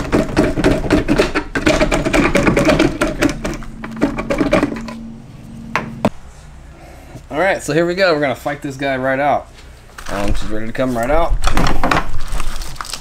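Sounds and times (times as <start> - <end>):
sharp knocks: 0.0 - 5.0.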